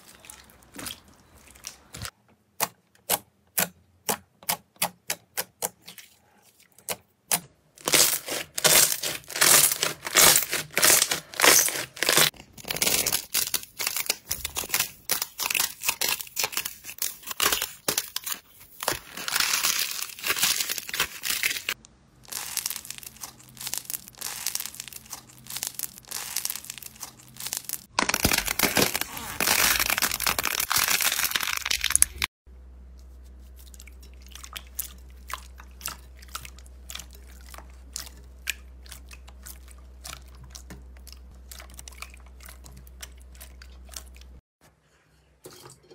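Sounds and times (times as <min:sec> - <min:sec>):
slime crackling and crunching: 0:07.8 - 0:32.3.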